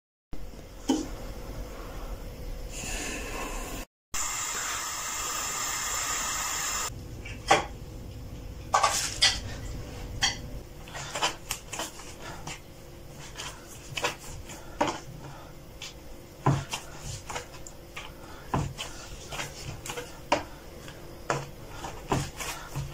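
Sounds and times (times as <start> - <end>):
pans and utensils clicking: 8.7 - 9.6
dough thumping on wooden board: 15.8 - 20.6, 21.3 - 22.9.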